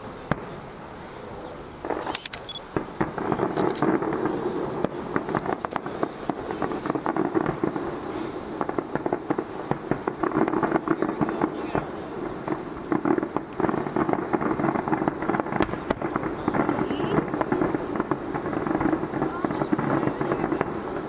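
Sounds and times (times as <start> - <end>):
fireworks bangs and crackles: 0.0 - 21.0.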